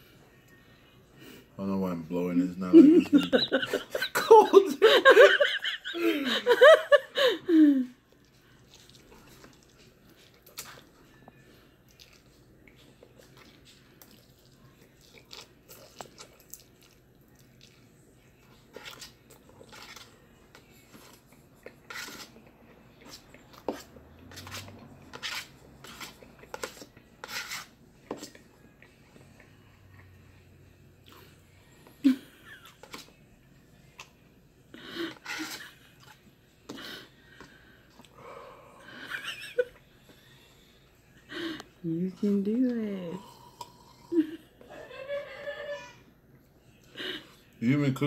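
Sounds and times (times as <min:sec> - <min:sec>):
man chewing and slurping noodles: 0:08.2 - 0:11.0, 0:11.9 - 0:30.2.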